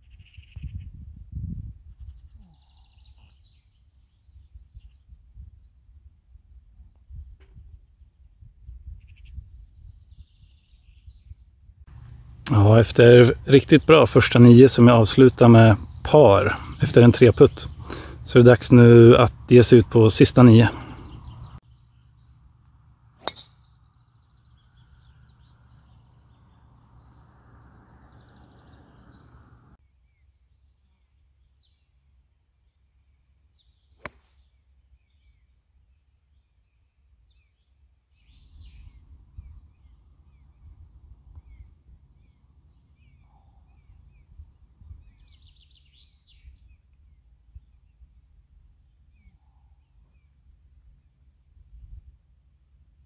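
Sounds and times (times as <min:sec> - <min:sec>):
birds chirping: 0:01.6 - 0:05.2, 0:08.9 - 0:32.0, 0:32.6 - 0:53.0
low outdoor rumble: 0:11.9 - 0:29.8
golf club striking ball: 0:23.2 - 0:23.8.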